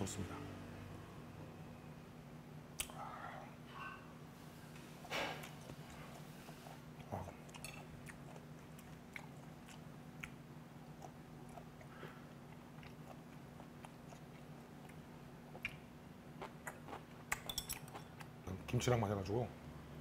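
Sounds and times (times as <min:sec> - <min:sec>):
person chewing food: 0:04.8 - 0:18.4.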